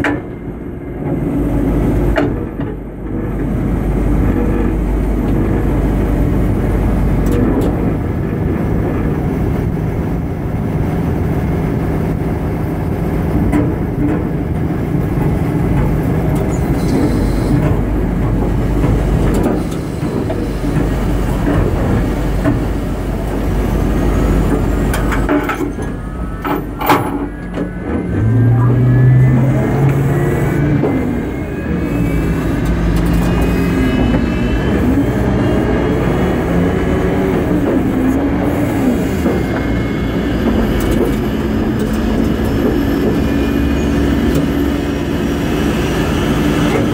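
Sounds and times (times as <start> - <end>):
jet engine rumble: 0.0 - 41.8
low drone: 0.0 - 46.9
whine rising in pitch: 21.7 - 46.9.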